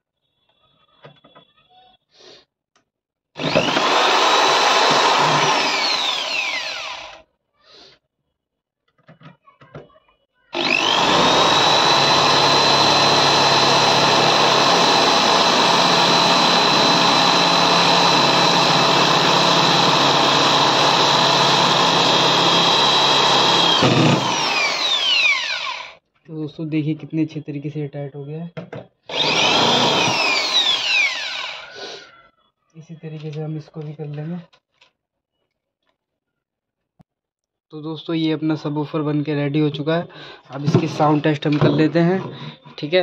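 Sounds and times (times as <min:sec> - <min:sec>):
cordless drill driving screws: 0:03.4 - 0:07.2, 0:10.5 - 0:26.0, 0:29.1 - 0:31.8.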